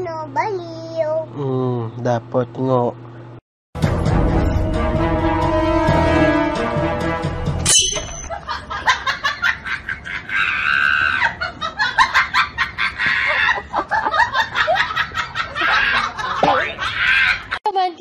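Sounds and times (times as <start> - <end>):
background music: 3.8 - 8.2.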